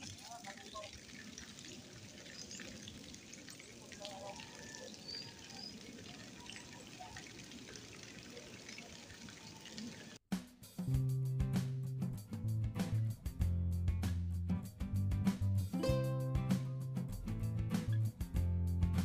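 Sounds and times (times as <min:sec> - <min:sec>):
distant indistinct voices: 0:00.1 - 0:10.2.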